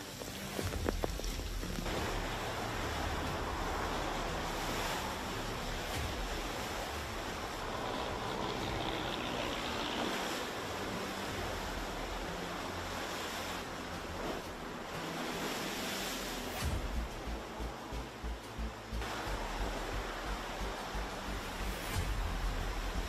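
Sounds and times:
surf breaking over rocks: 0.0s - 17.4s
wind: 0.0s - 23.0s.

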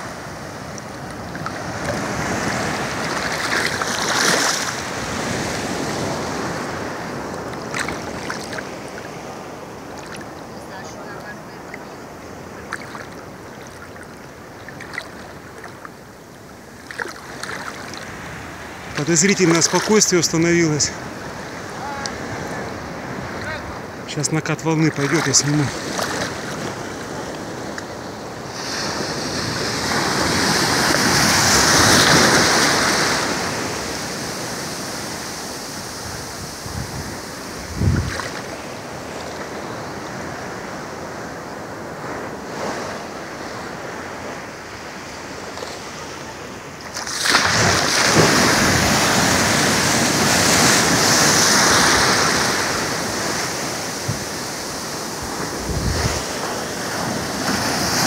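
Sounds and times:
waves breaking: 0.0s - 58.0s.

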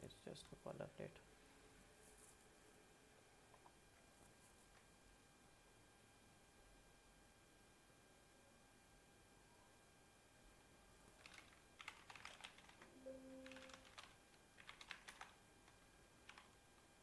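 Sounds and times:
keyboard typing: 11.1s - 16.6s
low steady tone: 12.9s - 14.0s.

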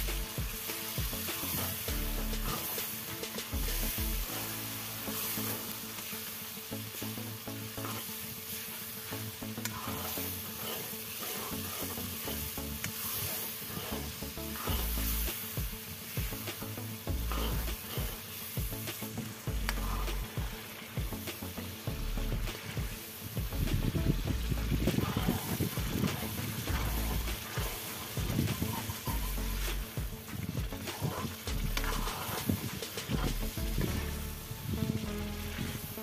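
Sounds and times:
curry sizzling in hot oil: 0.0s - 36.0s
dull low bumps: 14.0s - 16.4s, 17.1s - 18.9s, 19.5s - 21.3s, 21.9s - 35.8s.

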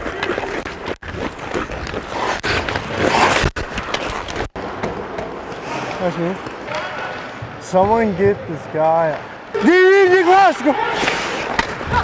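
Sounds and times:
skate blades scraping ice: 0.0s - 4.5s, 9.6s - 12.0s.

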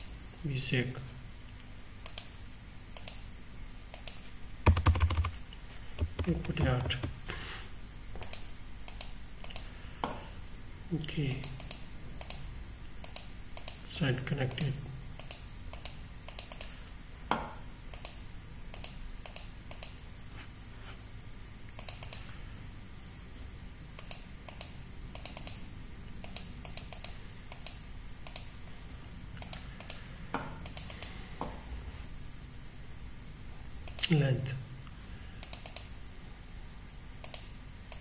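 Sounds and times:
computer keyboard typing: 4.0s - 5.4s, 6.0s - 7.3s, 15.2s - 16.7s, 26.2s - 28.5s, 35.4s - 35.9s.

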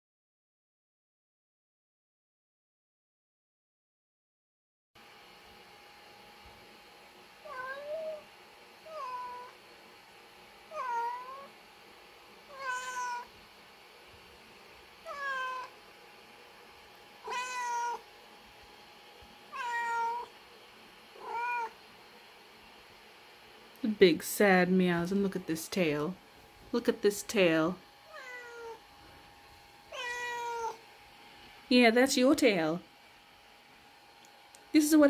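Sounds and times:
cat meowing: 7.4s - 8.2s, 8.9s - 9.6s, 10.7s - 11.5s, 12.5s - 13.3s, 15.0s - 15.7s, 17.2s - 18.0s, 19.5s - 20.3s, 21.2s - 21.8s, 28.1s - 28.8s, 29.9s - 30.8s.

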